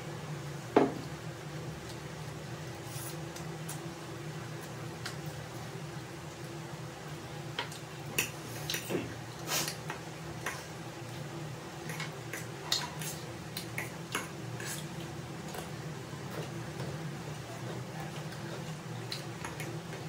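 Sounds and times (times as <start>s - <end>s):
chewing and slurping: 11.8s - 20.0s.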